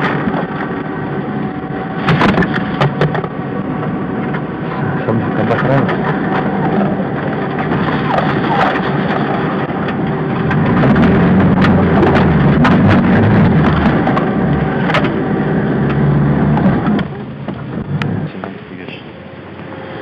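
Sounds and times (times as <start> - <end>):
car engine running under load: 0.0 - 20.0.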